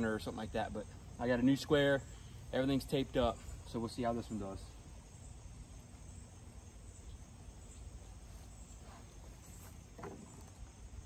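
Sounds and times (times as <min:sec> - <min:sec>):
insects chirring: 0:00.0 - 0:11.0
ear-muff handling rustle: 0:08.2 - 0:10.6.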